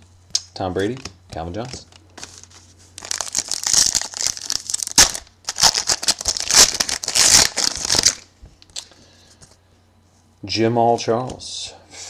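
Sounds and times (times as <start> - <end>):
foil wrapper tearing and crinkling: 2.2 - 8.9.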